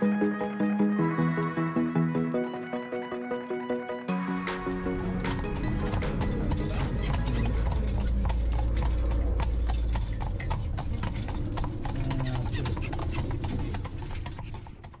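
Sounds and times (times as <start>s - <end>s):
horse hooves clip-clopping on road: 5.0s - 15.0s
low rumble: 5.6s - 14.3s.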